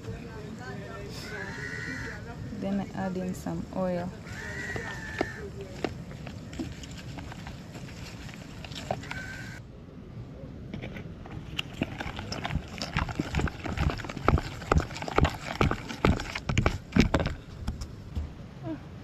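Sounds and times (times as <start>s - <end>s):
wooden spoon scraping plastic bowl: 4.8s - 9.4s.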